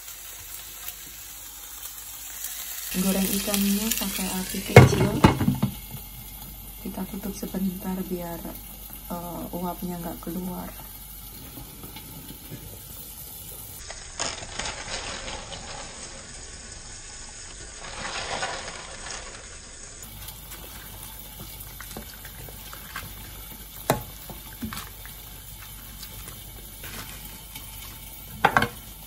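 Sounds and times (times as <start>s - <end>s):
broth bubbling in pot: 0.0s - 29.0s
leaves dropped into pot: 13.8s - 16.4s, 17.6s - 25.1s.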